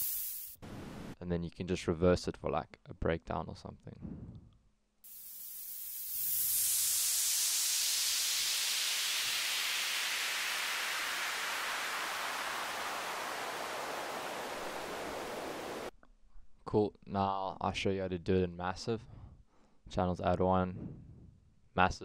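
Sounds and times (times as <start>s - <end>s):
falling white-noise sweep: 5.1s - 15.9s.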